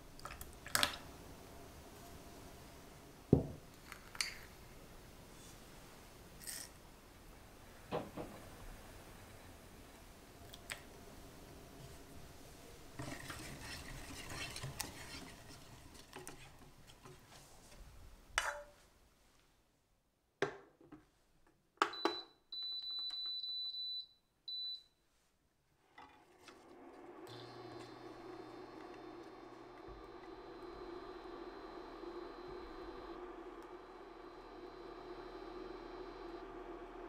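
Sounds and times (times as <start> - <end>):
whisk stirring in saucepan: 13.0 - 17.0
cooktop control panel beeps: 21.8 - 24.9.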